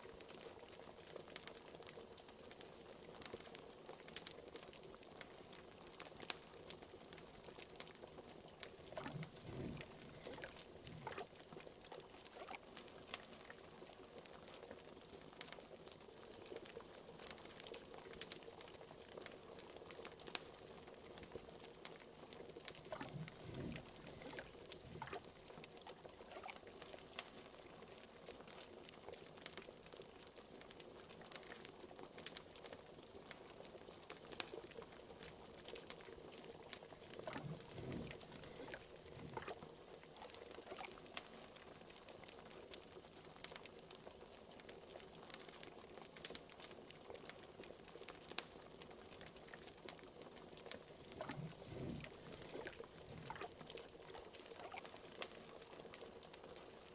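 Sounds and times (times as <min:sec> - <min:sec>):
liquid bubbling in a pot: 0:00.0 - 0:56.9
wood fire crackling and popping: 0:00.0 - 0:56.9
deep gurgles: 0:08.8 - 0:11.4, 0:22.6 - 0:25.3, 0:37.0 - 0:39.6, 0:51.0 - 0:53.8.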